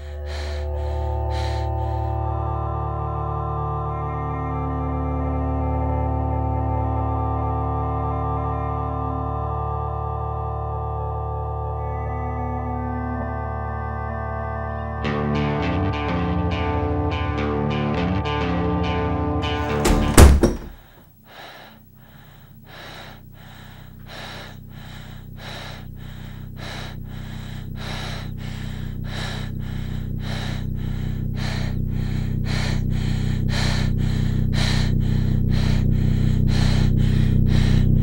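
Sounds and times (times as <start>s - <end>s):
rhythmic panting breaths: 0.0s - 3.1s, 19.5s - 38.0s
low drone: 0.0s - 13.4s, 21.3s - 38.0s.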